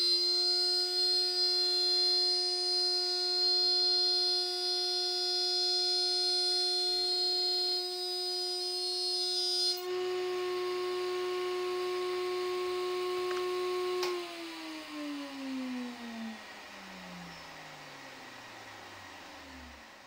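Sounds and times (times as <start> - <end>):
router high-pitched whine: 0.0 - 20.0.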